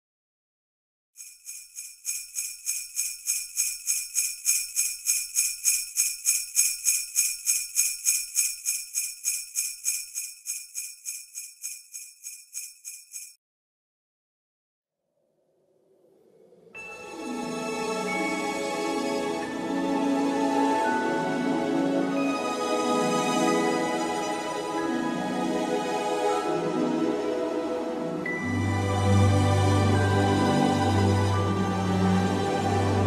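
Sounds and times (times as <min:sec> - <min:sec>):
sleigh bells shaking: 0:01.2 - 0:13.4.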